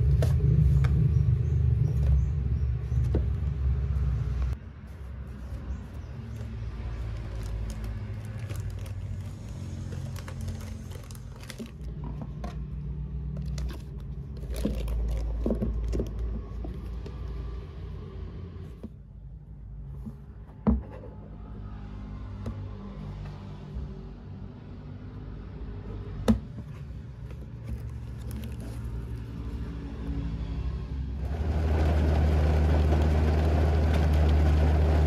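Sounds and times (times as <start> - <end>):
road traffic rumble: 0.0 - 35.0
face masks rustling: 26.7 - 29.8.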